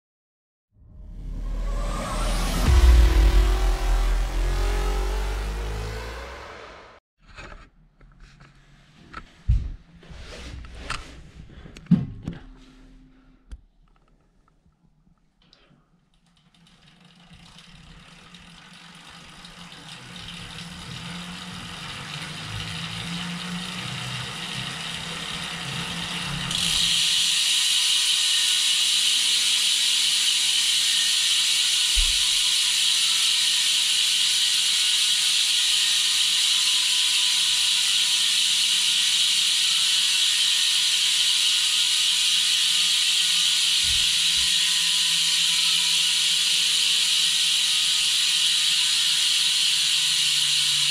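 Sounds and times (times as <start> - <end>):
bike wheel spinning: 16.1 - 50.9
freehub ratchet buzzing: 16.1 - 50.9.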